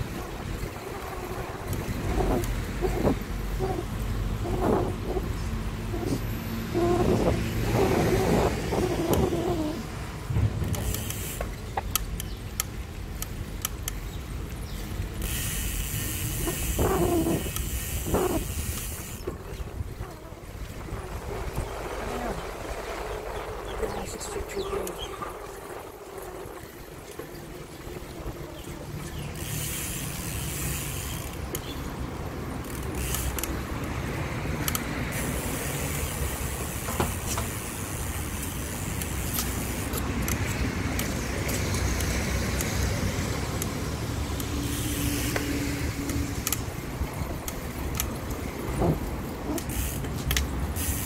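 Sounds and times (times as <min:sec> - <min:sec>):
wind rumble on microphone: 0:00.0 - 0:12.5, 0:15.8 - 0:29.4
bicycle tyre hiss: 0:10.7 - 0:11.8, 0:14.8 - 0:19.4, 0:29.2 - 0:31.4, 0:34.8 - 0:46.8, 0:48.8 - 0:51.0.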